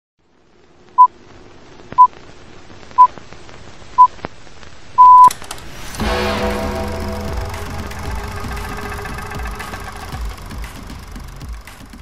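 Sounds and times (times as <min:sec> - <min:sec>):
electronic countdown beeps: 0:05.0 - 0:05.3
music: 0:05.6 - 0:12.0.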